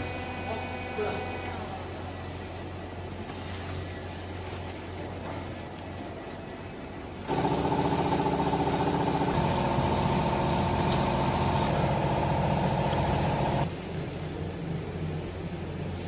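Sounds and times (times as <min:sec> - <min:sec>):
faint steady machine hum: 0:00.0 - 0:16.0
motor-driven pump humming: 0:07.2 - 0:13.7.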